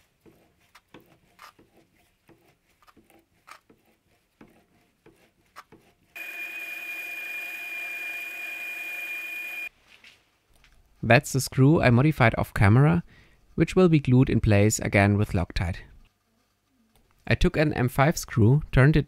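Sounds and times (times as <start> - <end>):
lathe high-pitched whine: 6.2 - 9.7.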